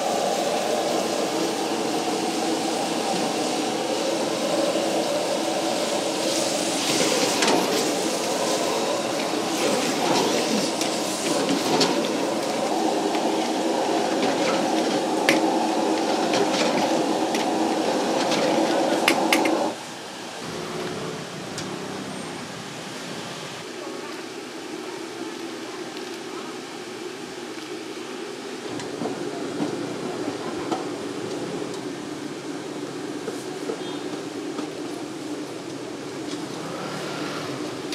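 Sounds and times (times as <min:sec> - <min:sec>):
gas burner roar: 0:00.0 - 0:19.8, 0:28.6 - 0:37.9.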